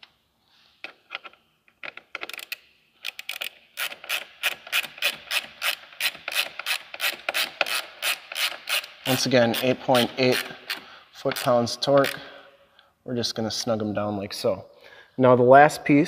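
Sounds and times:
ratcheting driver clicking: 1.1s - 12.2s.

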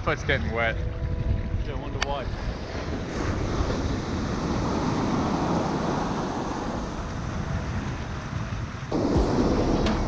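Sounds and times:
wind buffeting microphone: 0.0s - 10.0s
ocean surf breaking: 2.4s - 7.8s.

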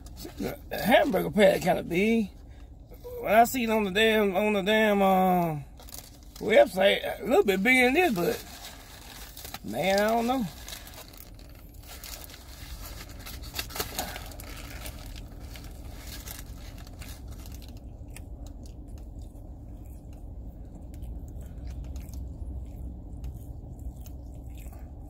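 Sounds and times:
low rumble: 4.7s - 25.0s
foil wrapper crinkling: 5.6s - 19.2s
chewing with mouth clicks: 16.4s - 25.0s.

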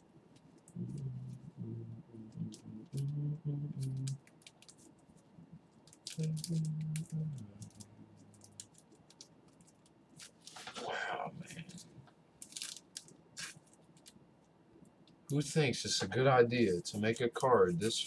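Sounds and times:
low steady tone: 0.0s - 4.2s, 5.4s - 8.6s, 15.3s - 18.0s.

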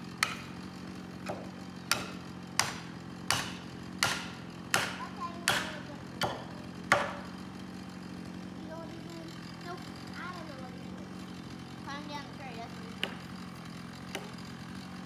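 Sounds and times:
hammer knocking a wedge: 0.2s - 0.6s, 1.2s - 7.3s, 12.9s - 13.3s, 14.1s - 14.4s.

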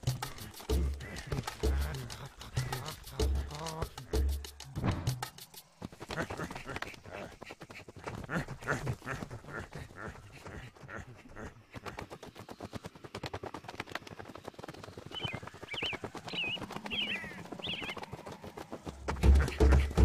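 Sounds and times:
music with heavy bass beat: 0.0s - 5.4s.

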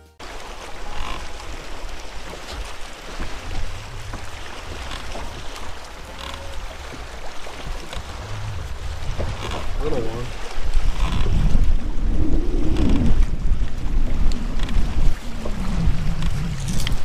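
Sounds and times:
water lapping against a hull: 0.2s - 17.0s
wind noise on microphone: 6.8s - 17.0s.

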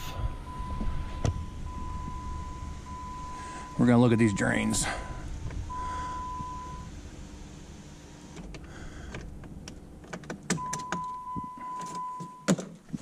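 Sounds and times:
high electronic tone: 0.0s - 7.0s
sunroof motor humming: 0.0s - 11.5s.

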